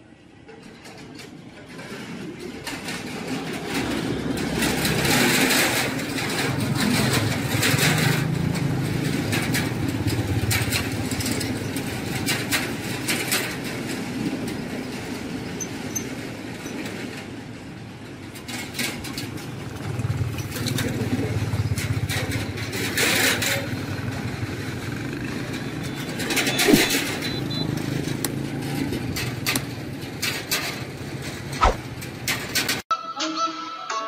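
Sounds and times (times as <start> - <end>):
engine passing close by: 2.8 - 15.6, 18.4 - 32.6.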